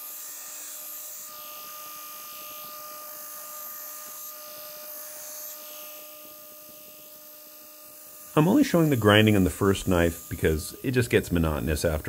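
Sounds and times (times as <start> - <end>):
belt grinder humming: 0.0 - 12.0
blade grinding hiss: 0.0 - 12.0.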